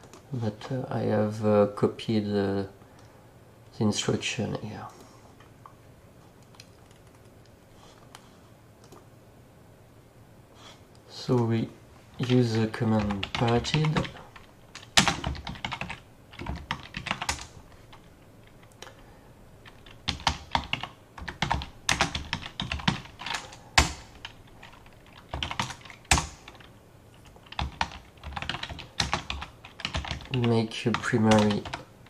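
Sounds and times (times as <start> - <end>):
typing on computer keyboard: 6.5 - 7.3, 13.0 - 18.0, 19.6 - 31.9.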